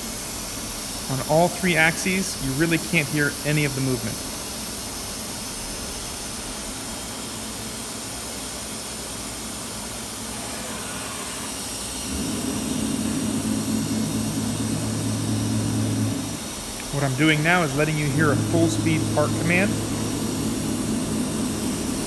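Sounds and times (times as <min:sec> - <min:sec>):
shop background hiss: 0:00.0 - 0:22.0
machine gantry humming: 0:12.0 - 0:22.0.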